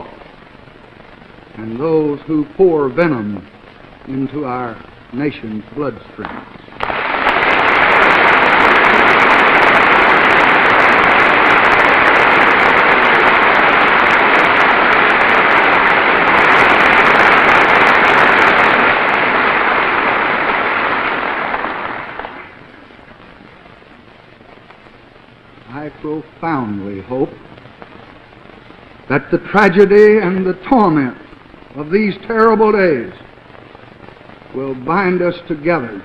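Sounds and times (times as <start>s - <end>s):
audience applause: 6.8s - 22.6s.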